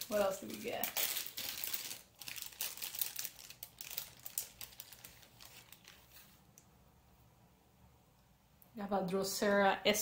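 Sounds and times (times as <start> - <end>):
plastic bags crinkling: 0.0 - 6.4.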